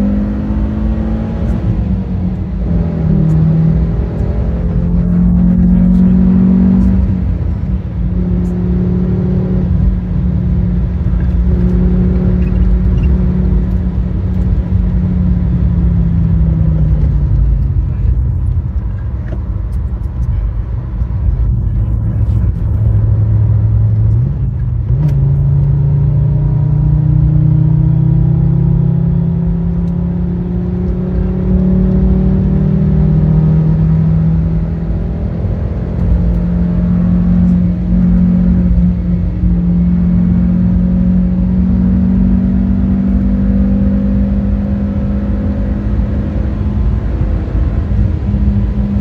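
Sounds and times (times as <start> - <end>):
car engine running: 0.0 - 49.0
road and tyre noise: 0.0 - 49.0.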